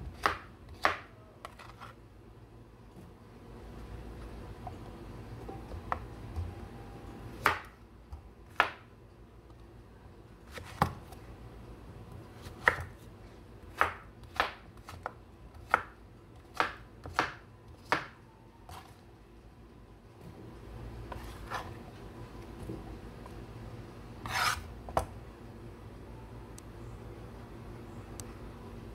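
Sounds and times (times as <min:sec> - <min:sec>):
knife chopping on wooden board: 0:00.0 - 0:01.8, 0:12.5 - 0:13.0, 0:13.7 - 0:15.9, 0:16.5 - 0:18.2, 0:24.2 - 0:25.1.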